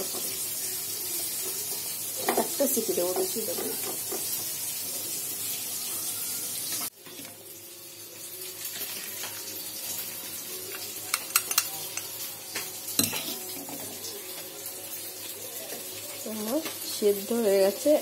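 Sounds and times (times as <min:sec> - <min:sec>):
metal cookware clinking: 0:10.7 - 0:12.3, 0:12.9 - 0:14.2.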